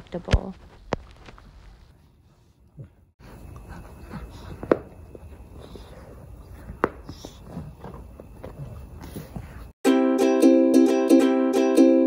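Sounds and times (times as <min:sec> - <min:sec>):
puppies scuffling and mouthing toy: 0:03.2 - 0:09.7.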